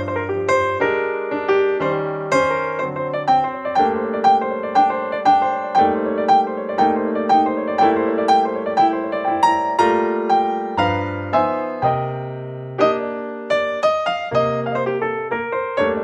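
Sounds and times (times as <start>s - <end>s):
piano music: 0.0s - 16.0s.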